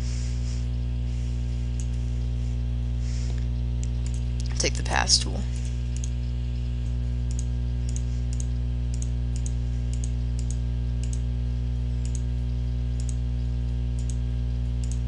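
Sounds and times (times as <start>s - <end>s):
loud steady low hum: 0.0s - 15.0s
computer mouse clicking: 3.8s - 4.2s, 6.0s - 6.2s, 7.3s - 11.2s, 12.0s - 12.2s, 13.0s - 13.2s, 14.0s - 14.2s, 14.8s - 15.0s.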